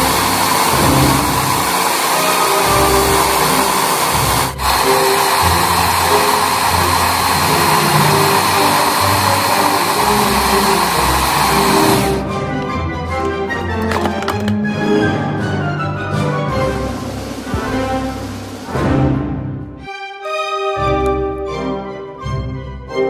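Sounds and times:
food processor motor grinding: 0.0 - 12.2
background music: 0.0 - 23.0.

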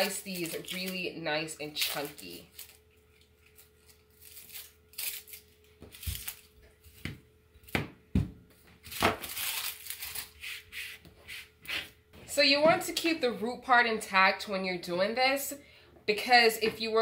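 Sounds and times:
onion skin rustling and crackling: 0.0 - 7.0, 8.8 - 10.9.

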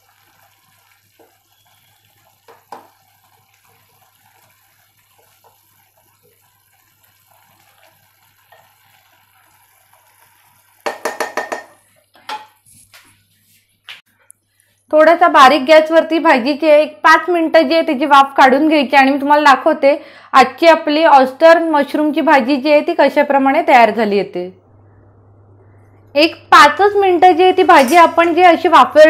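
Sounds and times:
wooden spatula stirring in pot: 0.1 - 13.6
spatula knocking on pot: 2.5 - 3.0, 10.8 - 12.6.

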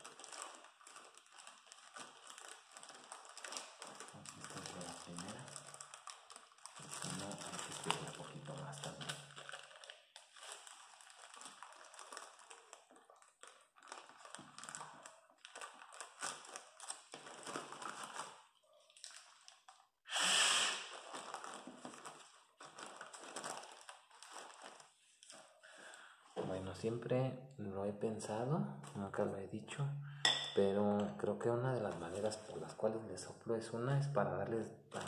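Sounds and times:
plastic bags crinkling: 0.0 - 19.9, 20.6 - 26.5, 31.6 - 33.0
puff of breath into a bag: 20.1 - 21.1.

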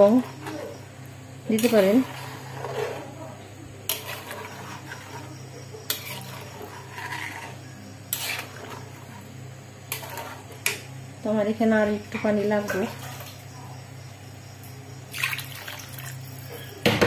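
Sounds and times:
metal spoon stirring in a wok: 0.0 - 10.9
steady low hum: 0.0 - 16.9.

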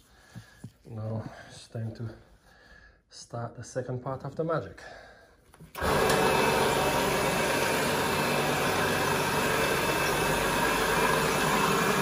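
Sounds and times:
carpet machine brushes scrubbing: 5.8 - 12.0.

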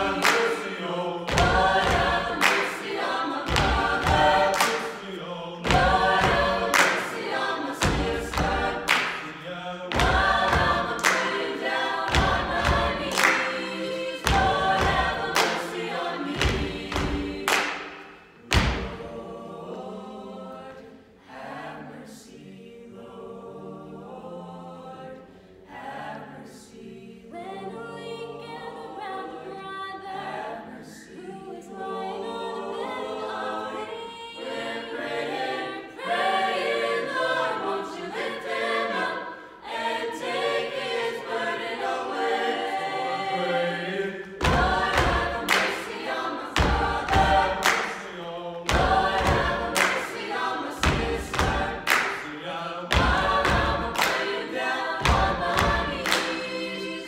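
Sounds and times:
sharp percussive beats: 0.0 - 13.7, 44.4 - 52.2
vocal ensemble singing in harmony: 0.0 - 57.0.

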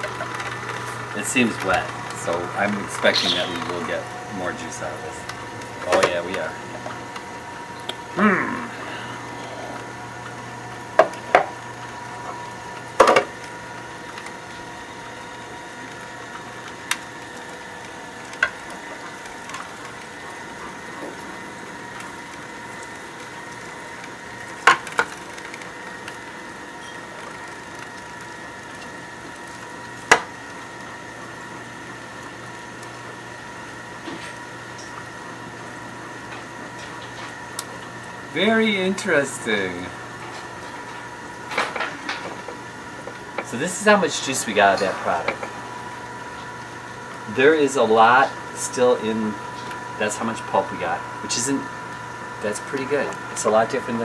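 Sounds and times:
juicer motor hum: 0.0 - 54.0
sharp cracks and clicks: 16.6 - 17.6, 21.9 - 26.3, 37.0 - 37.8.

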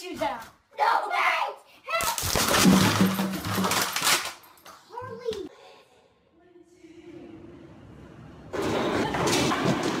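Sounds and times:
metal sign crashing and clattering: 2.4 - 4.3.

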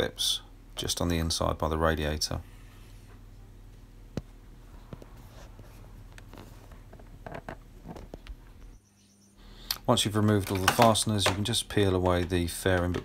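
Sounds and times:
low steady hum: 0.0 - 13.0
handling clicks and taps: 9.7 - 13.0.

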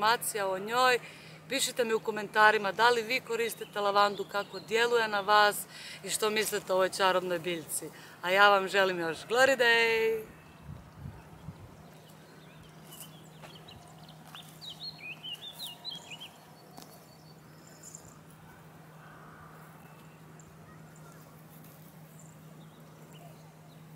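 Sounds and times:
faint outdoor background: 0.0 - 23.9
steady low hum: 0.0 - 23.9
songbird twittering: 10.3 - 18.2.

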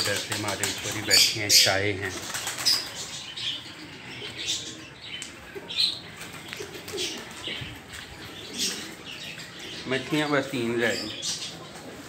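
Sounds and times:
pigeon wing flaps: 0.0 - 1.2, 2.2 - 2.9.

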